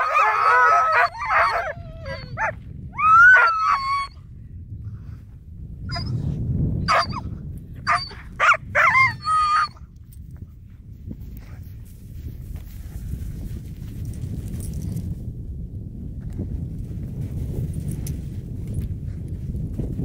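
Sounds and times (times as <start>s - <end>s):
dogs whining and yelping: 0.0s - 4.2s, 5.9s - 6.3s, 6.9s - 7.3s, 7.9s - 9.8s.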